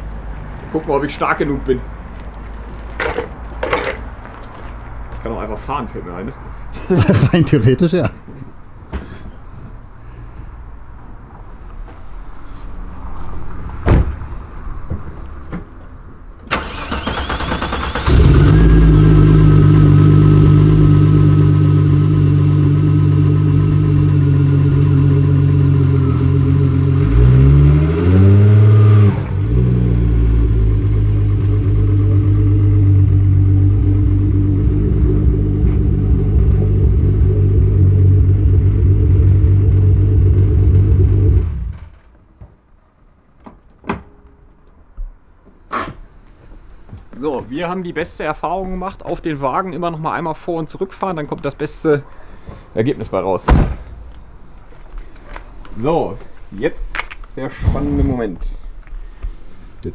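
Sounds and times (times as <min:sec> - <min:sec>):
starter motor cranking: 0:16.5 - 0:18.7
car engine idling: 0:16.5 - 0:27.6, 0:28.3 - 0:42.2
engine revving: 0:16.5 - 0:42.1.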